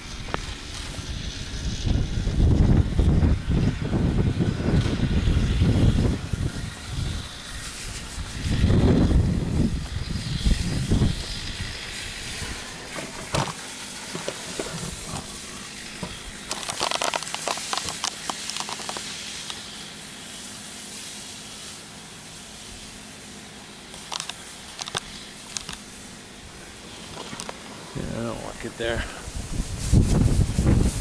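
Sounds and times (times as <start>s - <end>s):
spray wand hiss: 3.4s - 31.0s
crackling clicks: 16.0s - 19.7s, 23.9s - 25.9s, 27.0s - 27.6s.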